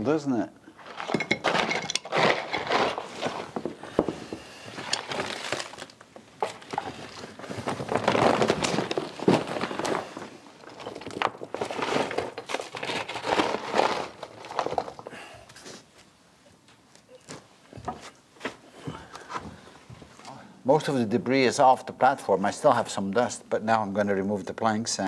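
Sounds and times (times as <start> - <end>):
shovel scraping wooden planks: 0.8 - 5.5, 6.4 - 14.8
rubble clattering: 0.8 - 15.1
woven bag fabric rustling: 4.7 - 15.0.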